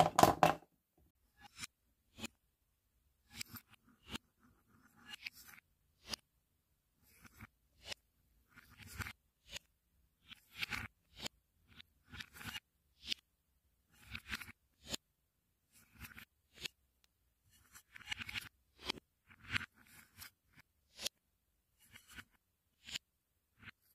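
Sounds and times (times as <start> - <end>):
spoon scraping wooden cups: 0.0 - 0.6
wooden balls clacking in bowl: 0.0 - 0.6.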